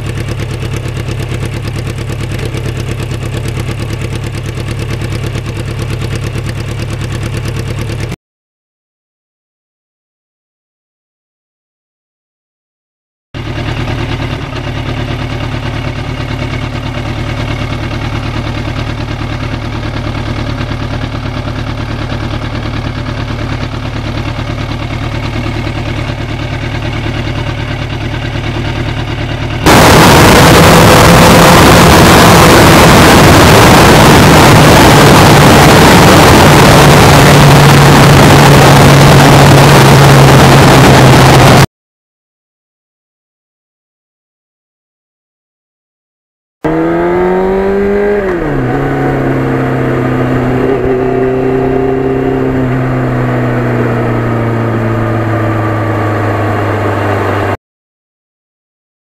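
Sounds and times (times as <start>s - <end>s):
motorcycle engine idling: 0.0s - 8.2s, 13.4s - 30.8s
motorcycle riding at speed: 0.0s - 8.2s, 13.4s - 41.7s, 46.6s - 57.6s
wind noise: 29.7s - 41.7s.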